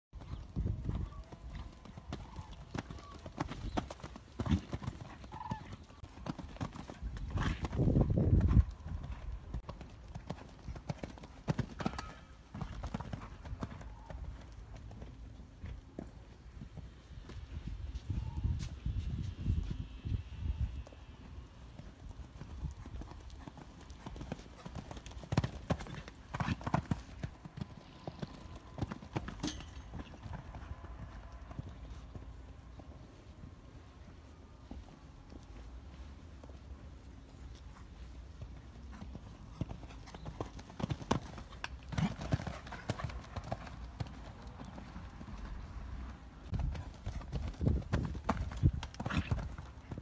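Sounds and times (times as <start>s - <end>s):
horse hooves cantering on sand: 0.2s - 20.1s, 20.8s - 50.0s.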